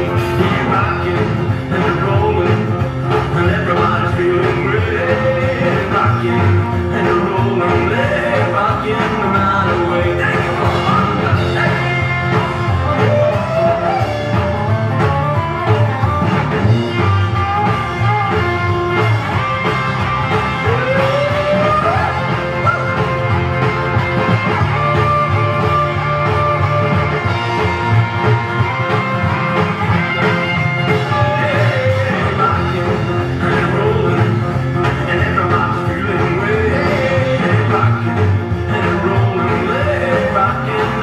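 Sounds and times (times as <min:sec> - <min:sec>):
rock and roll music: 0:00.0 - 0:41.0.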